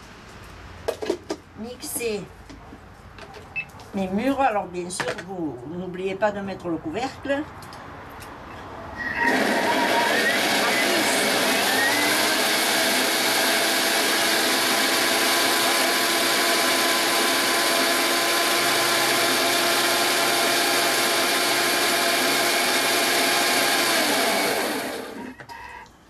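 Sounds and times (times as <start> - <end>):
food processor motor whine: 9.0 - 25.4.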